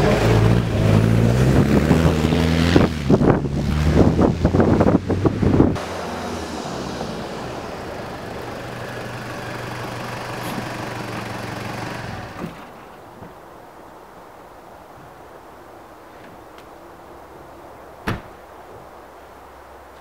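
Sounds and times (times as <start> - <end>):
engine and wind rush: 0.0 - 13.7
car engine idling: 3.2 - 13.2.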